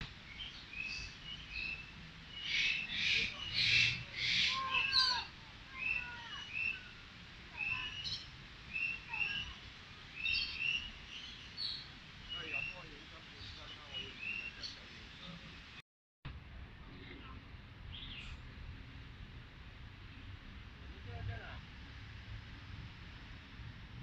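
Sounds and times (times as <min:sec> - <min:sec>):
birds chirping: 0:00.2 - 0:15.8
bird harsh screeches: 0:02.7 - 0:06.9.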